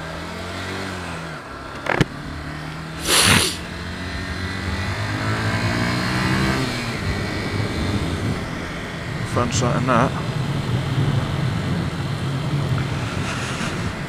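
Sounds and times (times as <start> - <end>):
motorcycle engine accelerating: 0.0 - 14.0
loud rush of noise: 3.0 - 3.8, 7.0 - 14.0.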